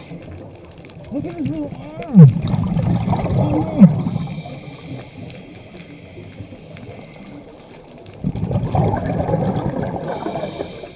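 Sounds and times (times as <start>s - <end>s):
low underwater rumble: 0.0s - 10.9s
underwater exhaled bubbles: 0.0s - 10.9s.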